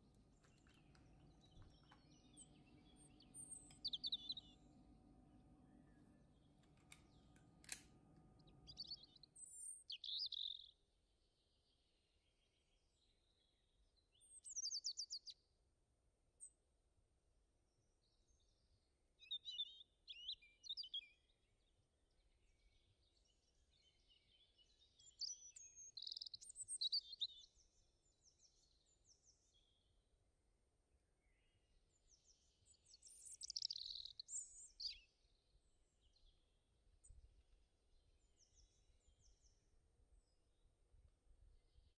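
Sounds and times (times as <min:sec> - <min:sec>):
birds chirping faintly: 0:00.0 - 0:15.4, 0:31.2 - 0:41.9.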